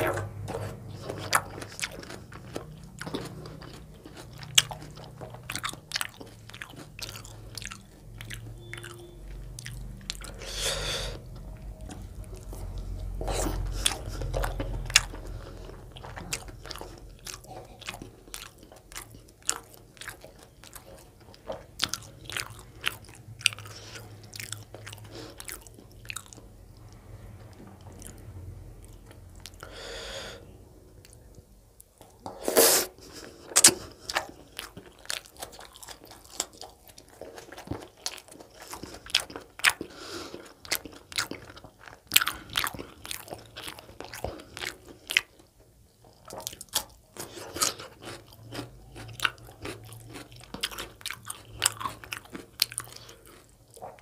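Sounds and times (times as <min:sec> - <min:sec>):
wet chewing and lip smacks: 0:00.1 - 0:10.4, 0:11.3 - 0:28.2, 0:33.5 - 0:54.0.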